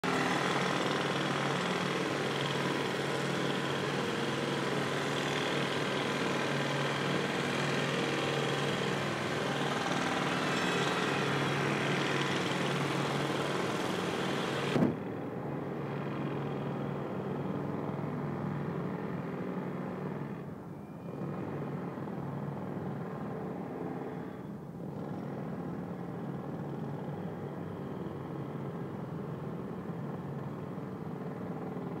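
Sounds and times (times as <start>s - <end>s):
jackhammer hammering: 0.0s - 14.8s.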